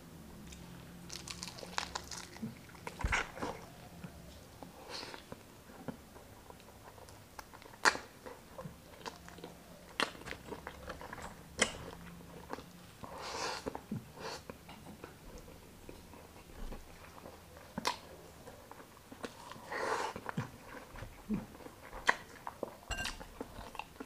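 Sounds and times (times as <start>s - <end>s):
person chewing: 0.5s - 3.8s.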